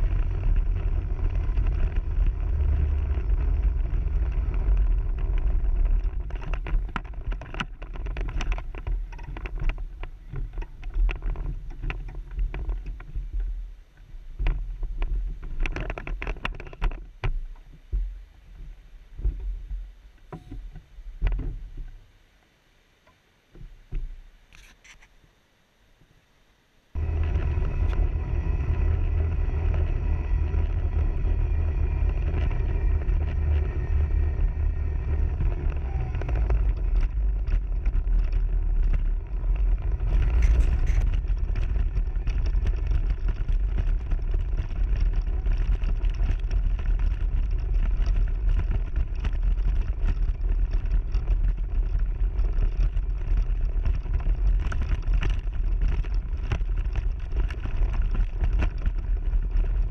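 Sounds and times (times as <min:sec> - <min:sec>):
deep steady rumble: 0:00.0 - 0:24.6, 0:26.8 - 0:59.9
rattles and knocks: 0:03.0 - 0:13.5, 0:27.0 - 0:59.9
electric motor whine: 0:27.0 - 0:38.1.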